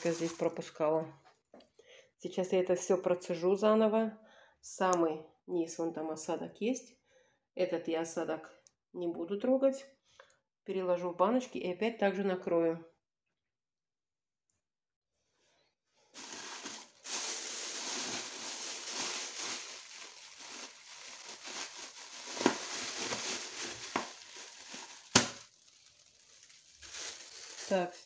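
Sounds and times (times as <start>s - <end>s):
cellophane bag crinkling: 0.0s - 0.7s, 16.2s - 28.0s.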